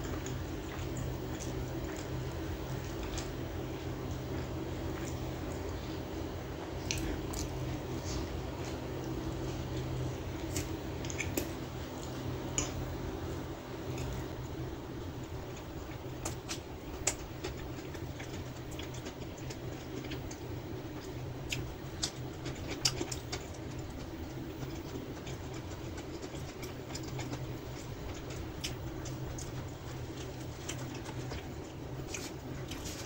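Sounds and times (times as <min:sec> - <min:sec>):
low background hum: 0:00.0 - 0:33.0
chewing mouth clicks and smacks: 0:06.8 - 0:07.7, 0:10.4 - 0:12.8, 0:21.0 - 0:23.8, 0:24.6 - 0:33.0.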